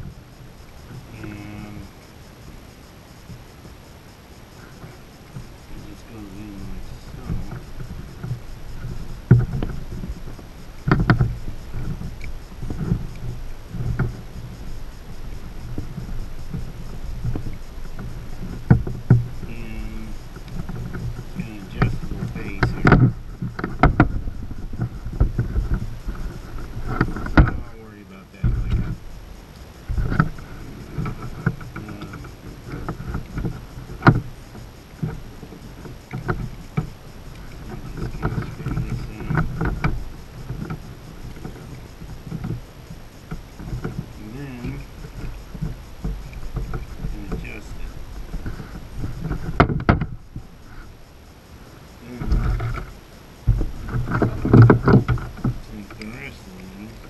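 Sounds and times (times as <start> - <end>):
power adapter cord clicking and knocking: 21.8 - 24.2.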